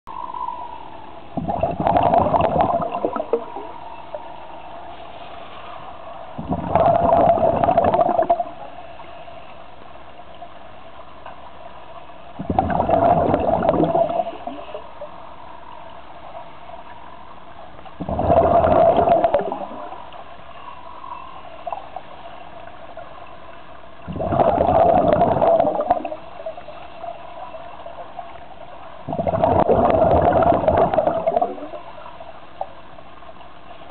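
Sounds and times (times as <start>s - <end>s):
low underwater hum: 0.1s - 33.9s
regulator bubbles rushing: 1.3s - 4.3s, 6.4s - 8.7s, 12.4s - 15.0s, 18.0s - 20.2s, 24.0s - 26.8s, 29.0s - 32.2s.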